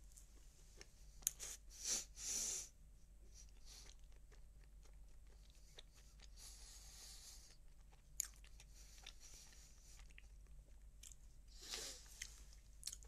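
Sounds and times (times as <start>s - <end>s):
chewing soft pastry: 0.1s - 1.6s, 3.3s - 13.0s.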